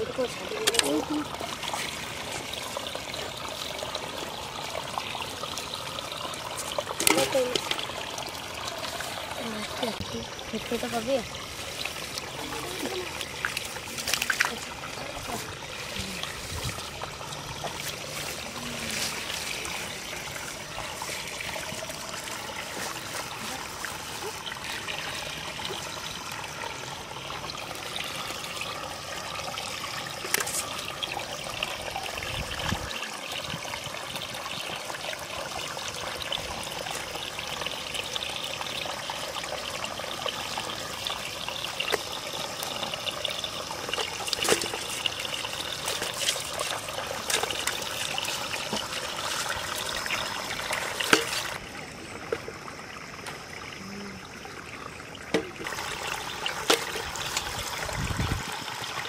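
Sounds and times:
muddy water splashing: 0.0 - 59.0
hands handling wet net: 44.3 - 49.9.

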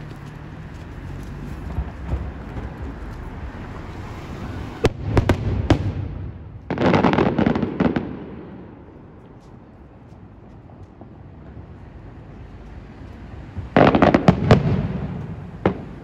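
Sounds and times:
fireworks rumble: 0.0 - 16.0
fireworks sharp bangs: 1.6 - 9.2, 13.5 - 16.0
fireworks rapid pops: 13.6 - 16.0.

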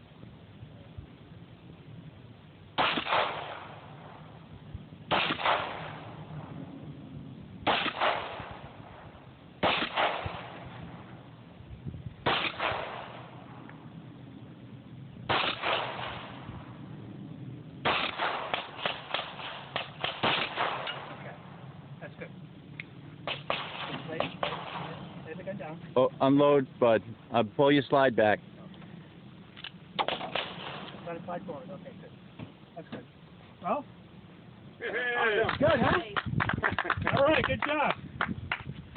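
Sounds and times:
pistol shots: 2.8 - 4.2, 5.1 - 6.2, 7.6 - 9.0, 9.6 - 11.0, 12.2 - 13.6, 15.3 - 16.5, 17.8 - 21.3, 23.2 - 25.2, 30.0 - 31.0.

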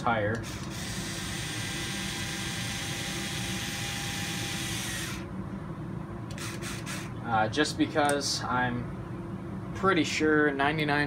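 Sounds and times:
electric screwdriver running: 0.4 - 5.2, 6.3 - 7.1.

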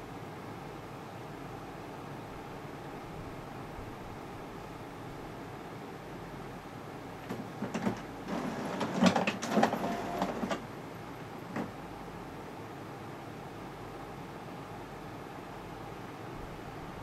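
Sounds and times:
printer mechanism clicking and clattering: 7.2 - 10.7
printer motor whir: 7.3 - 10.7.

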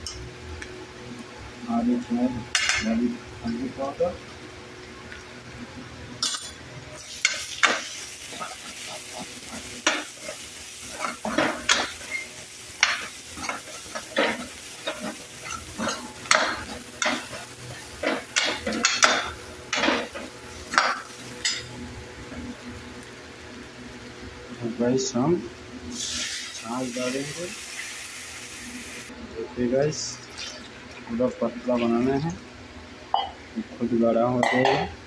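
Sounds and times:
oil sizzling: 1.9 - 29.2.

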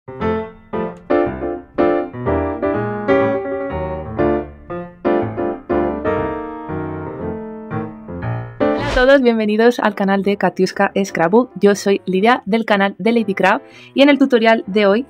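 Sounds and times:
piano chords: 0.1 - 9.9.

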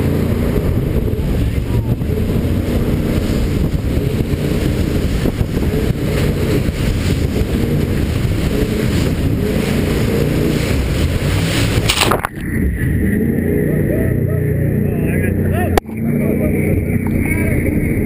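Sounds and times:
wind noise on microphone: 0.0 - 13.6
boat engine running hard: 0.0 - 18.0
rushing water: 0.0 - 18.0
spray against hull: 2.4 - 12.1.

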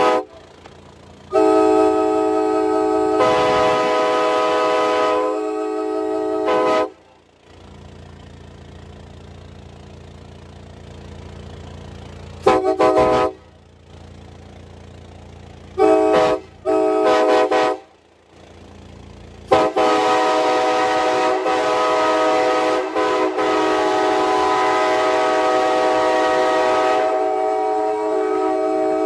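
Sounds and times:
train air horn chord: 0.0 - 0.4, 1.3 - 7.2, 12.4 - 13.5, 15.8 - 18.0, 19.5 - 29.0.

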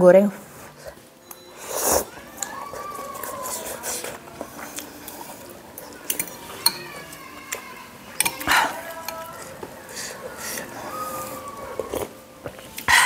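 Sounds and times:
cutlery clinking on ceramic bowl: 6.1 - 7.1.

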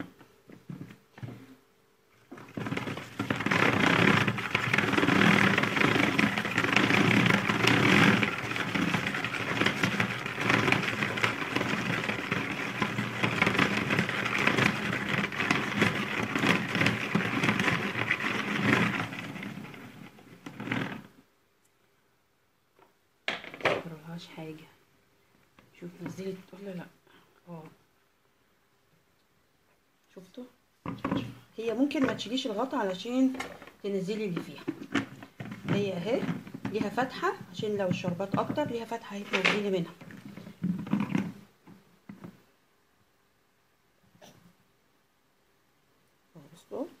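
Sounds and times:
salad spinner whirring and rattling: 2.3 - 21.1.

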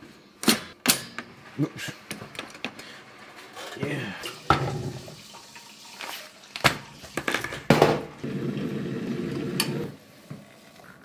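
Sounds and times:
kitchen clicks and knocks: 3.7 - 8.2.

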